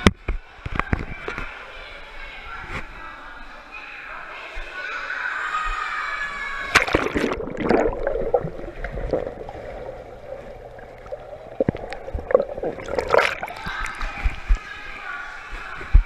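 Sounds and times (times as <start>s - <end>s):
water splashing and gurgling: 6.7s - 14.7s.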